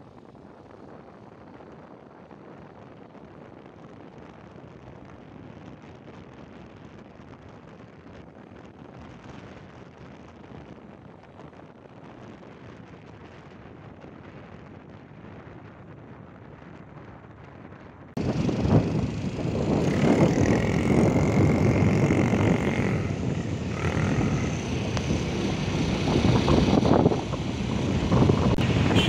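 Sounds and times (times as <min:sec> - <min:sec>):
wind on microphone: 0:00.0 - 0:29.0
tyre and road noise: 0:18.2 - 0:29.0.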